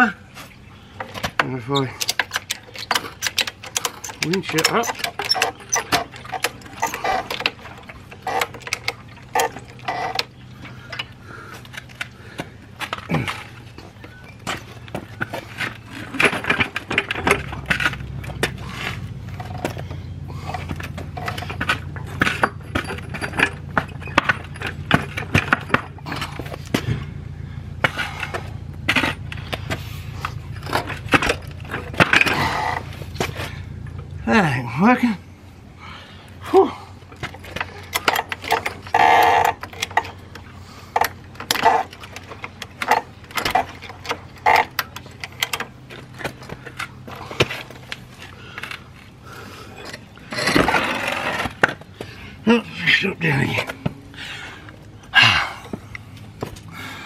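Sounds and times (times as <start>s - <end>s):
low hum: 0.0s - 57.0s
metal clicks and clinks: 2.0s - 11.1s.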